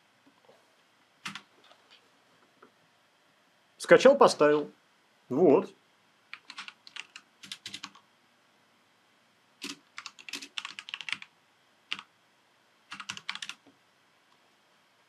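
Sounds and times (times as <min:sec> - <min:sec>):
keyboard typing: 0:01.2 - 0:01.5, 0:06.3 - 0:08.0, 0:09.6 - 0:11.3, 0:12.9 - 0:13.7.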